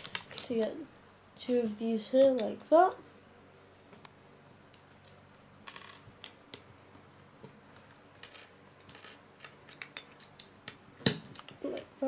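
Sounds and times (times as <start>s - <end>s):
plastic bricks clicking together: 8.2s - 11.8s.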